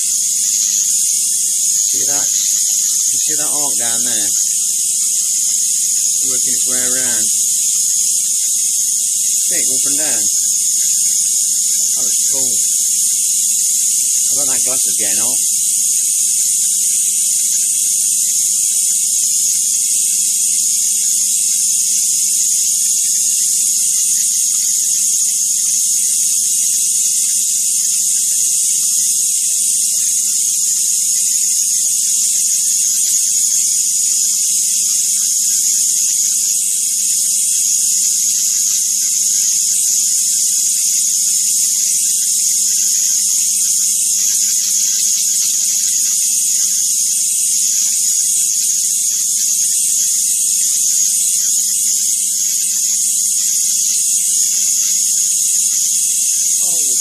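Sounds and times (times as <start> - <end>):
high-voltage arc hissing: 0.0 - 16.3, 49.8 - 57.0.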